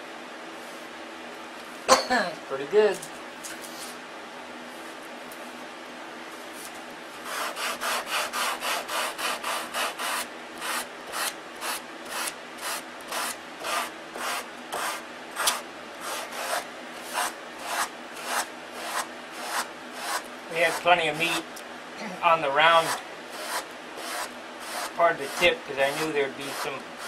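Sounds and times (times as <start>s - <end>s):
sanding block rubbing on wood: 7.2s - 21.4s, 22.7s - 27.0s.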